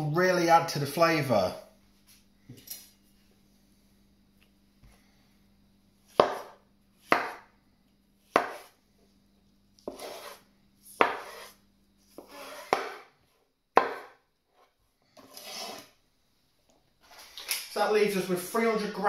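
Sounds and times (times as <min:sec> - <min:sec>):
cleaver chopping on wooden board: 0:06.2 - 0:07.4, 0:08.3 - 0:08.7, 0:11.0 - 0:11.4, 0:12.2 - 0:13.1, 0:13.8 - 0:14.2
knife scraping board: 0:08.4 - 0:08.8, 0:09.8 - 0:13.1, 0:13.8 - 0:16.0.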